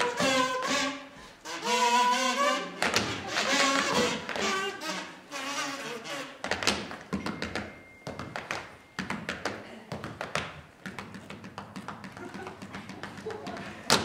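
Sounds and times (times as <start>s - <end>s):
tap shoes on stage floor: 6.4s - 14.0s.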